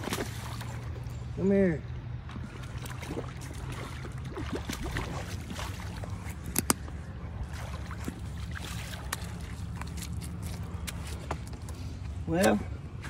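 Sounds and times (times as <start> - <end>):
fish slapping on wet concrete: 0.0 - 0.7, 7.7 - 11.5
low rumble and hiss: 0.0 - 13.0.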